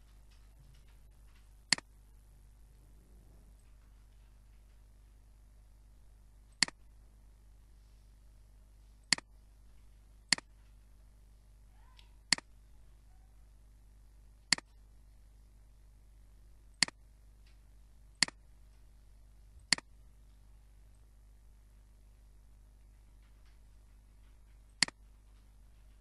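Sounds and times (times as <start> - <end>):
faint steady hum: 0.0 - 26.0
computer mouse clicking: 1.7 - 1.9, 9.1 - 9.3, 14.5 - 14.8, 19.6 - 19.9, 24.7 - 25.4.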